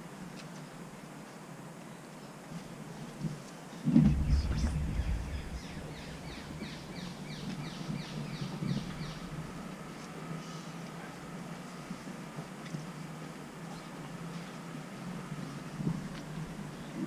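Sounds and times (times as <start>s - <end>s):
low rumble on microphone: 3.9s - 10.1s.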